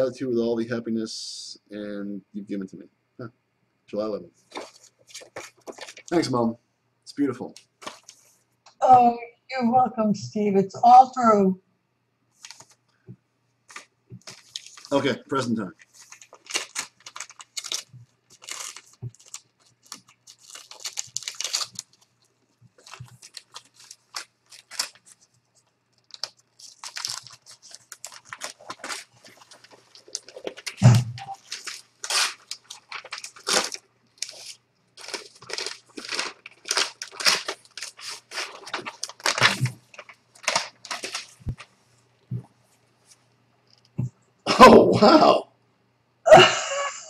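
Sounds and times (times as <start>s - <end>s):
paper tearing and crumpling: 4.5s - 6.3s, 7.5s - 8.3s, 13.7s - 25.3s, 26.0s - 41.6s.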